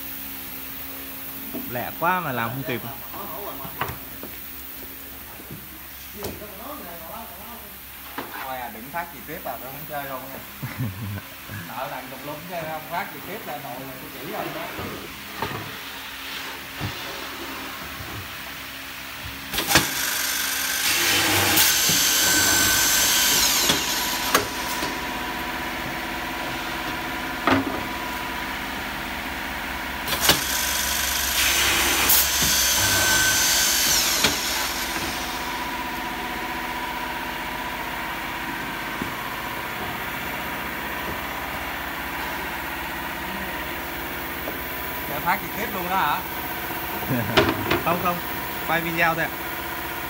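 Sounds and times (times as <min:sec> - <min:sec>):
drill boring into board: 0:19.6 - 0:24.6, 0:30.1 - 0:35.4.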